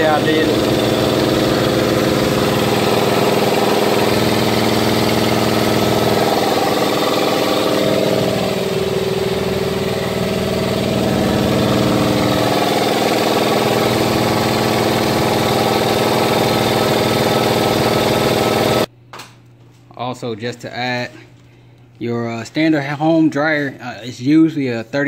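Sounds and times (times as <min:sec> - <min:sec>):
air compressor running: 0:00.0 - 0:18.9.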